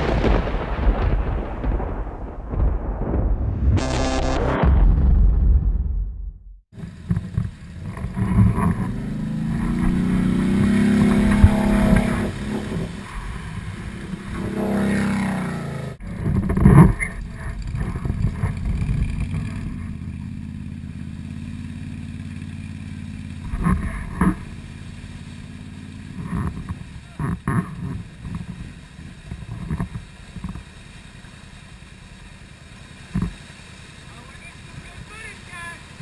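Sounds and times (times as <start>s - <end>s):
atv engine revving: 6.8s - 28.8s.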